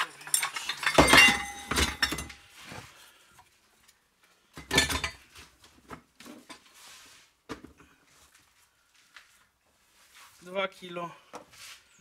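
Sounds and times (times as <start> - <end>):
metal scrap clattering in a crate: 0.0 - 2.4.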